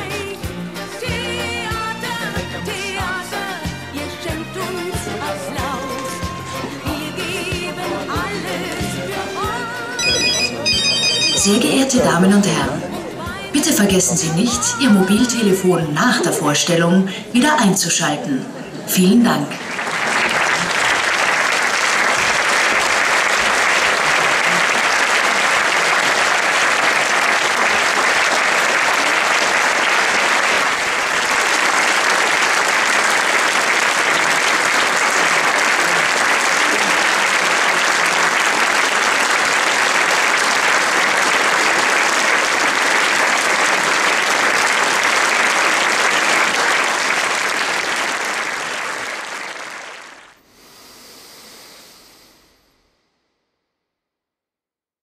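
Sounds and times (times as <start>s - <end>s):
audience applauding: 4.8s - 15.6s, 19.0s - 51.8s.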